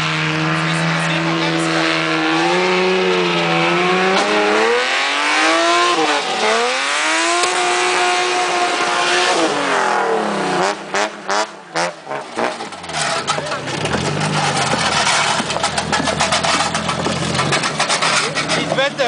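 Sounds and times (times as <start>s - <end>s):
car engine revving hard: 0.0s - 19.0s
tyres screeching: 12.0s - 19.0s.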